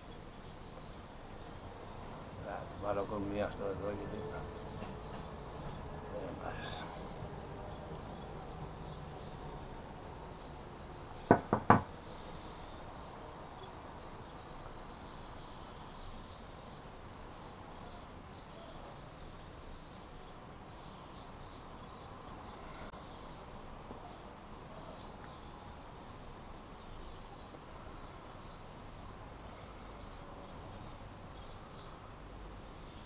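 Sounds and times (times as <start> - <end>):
sharp knocks: 11.3 - 11.9.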